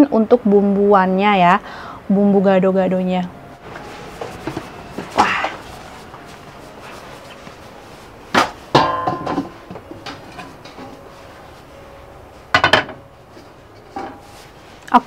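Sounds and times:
pot and lid clinking: 8.3s - 11.0s
metal pot clanging on stove: 8.4s - 11.0s, 12.5s - 13.0s.

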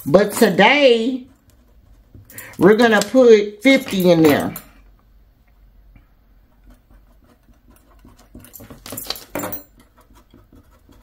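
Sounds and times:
sharp clicks and scratches: 0.0s - 4.2s, 6.4s - 11.0s
metal bracelets clinking: 8.3s - 9.8s.

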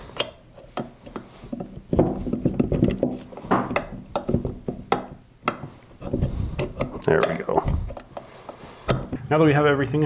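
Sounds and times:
metal parts clicking and knocking: 0.1s - 5.2s.

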